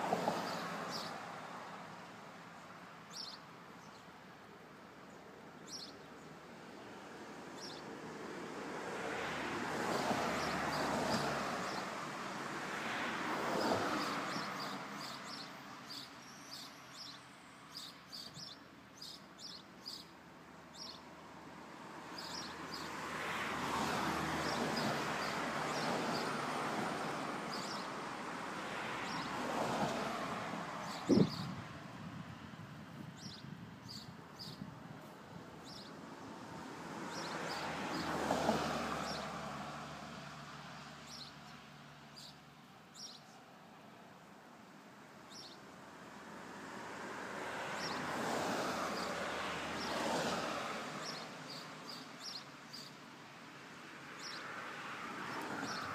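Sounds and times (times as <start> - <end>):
vehicles driving past: 0.0 - 18.2, 19.4 - 55.9
small birds chirping: 0.4 - 1.2, 2.6 - 6.4, 7.5 - 7.9, 14.0 - 21.2, 22.1 - 23.0, 27.5 - 28.0, 29.0 - 29.3, 30.8 - 31.6, 33.0 - 36.0, 37.1 - 38.1, 40.8 - 43.4, 45.3 - 45.7, 47.8 - 48.0, 51.0 - 53.1, 54.1 - 54.6, 55.3 - 55.9.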